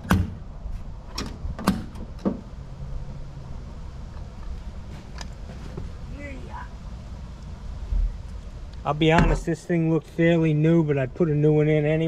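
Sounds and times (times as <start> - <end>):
low steady rumble: 0.0 - 12.0
tools knocking and clunking: 1.1 - 2.5.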